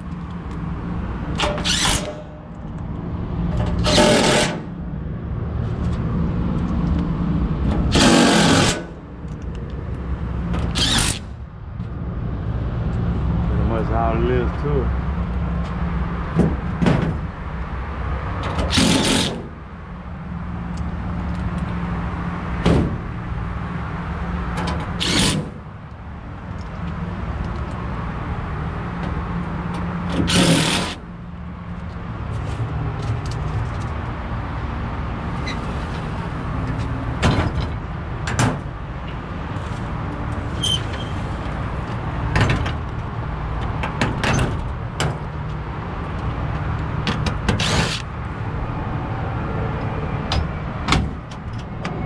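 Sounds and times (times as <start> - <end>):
cordless drill driving screws: 10.8 - 11.2, 18.7 - 19.3, 25.0 - 25.4, 30.3 - 31.0.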